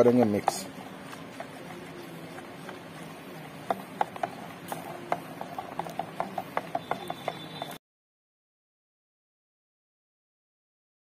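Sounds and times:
liquid being stirred in a jug: 0:00.0 - 0:07.8
stirrer clicking against jug: 0:00.0 - 0:07.8.

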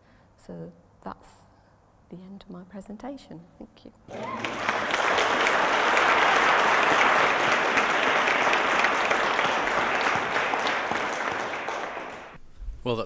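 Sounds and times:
audience applause: 0:04.1 - 0:12.4.

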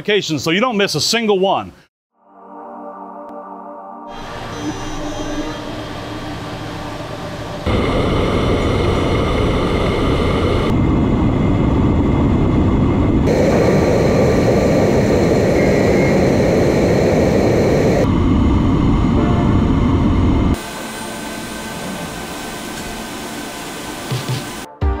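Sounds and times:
faint spindle whine: 0:04.1 - 0:10.7, 0:13.3 - 0:24.7
machine cutting metal with coolant spray: 0:20.6 - 0:24.7.

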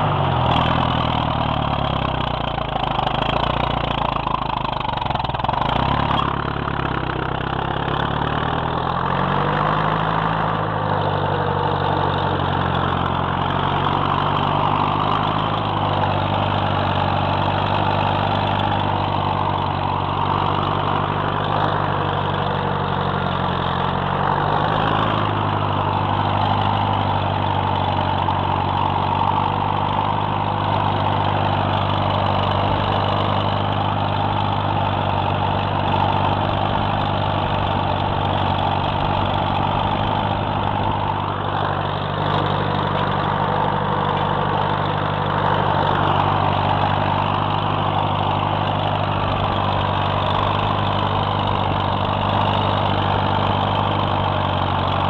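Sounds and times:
tractor engine running under load: 0:00.0 - 0:55.0.

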